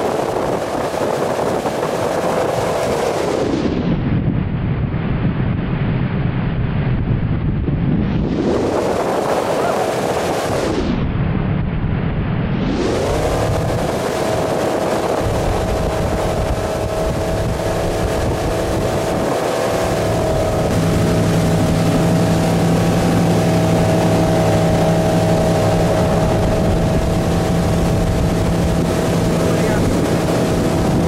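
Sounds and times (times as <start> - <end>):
boat engine running: 0.0 - 3.8, 12.8 - 31.0
wind and spraying water: 0.0 - 31.0.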